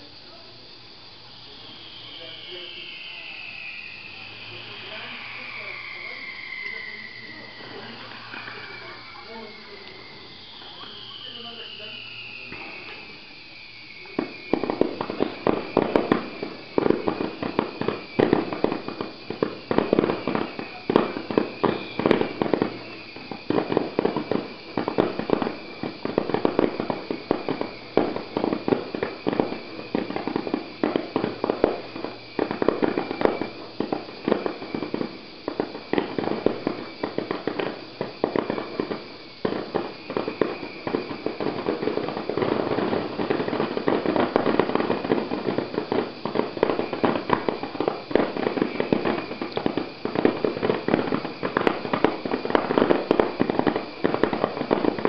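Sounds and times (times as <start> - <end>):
fireworks bangs and crackles: 0.0 - 55.0.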